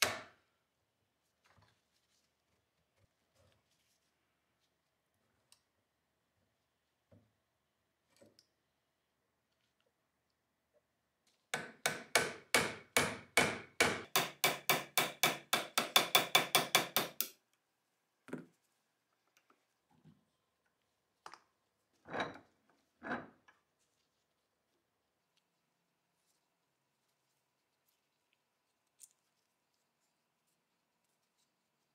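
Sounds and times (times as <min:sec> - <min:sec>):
hammer tapping metal punch: 0:11.6 - 0:17.4.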